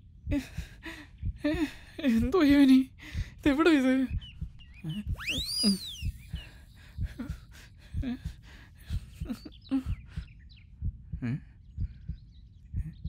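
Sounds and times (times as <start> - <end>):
soft low thumps: 0.0 - 13.0
faint short chirps: 4.6 - 6.6
whistle-like gliding tone: 4.8 - 6.6.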